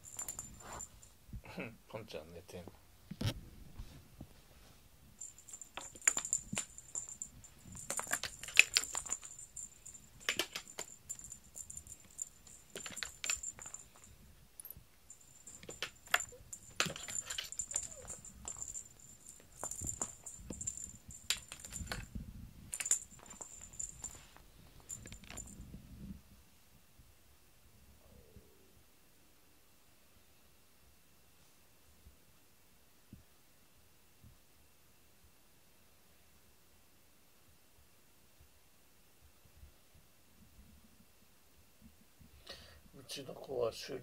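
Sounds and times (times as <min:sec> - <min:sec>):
cat toy rattling and rustling: 0:00.0 - 0:01.1, 0:05.2 - 0:25.7.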